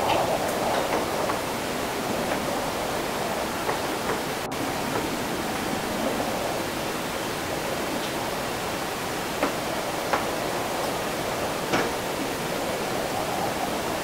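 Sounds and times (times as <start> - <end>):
wind: 0.0 - 14.0.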